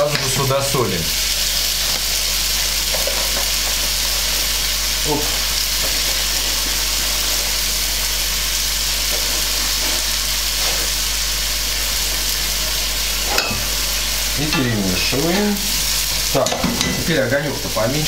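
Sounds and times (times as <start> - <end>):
liquid boiling and sizzling in pan: 0.0 - 18.0.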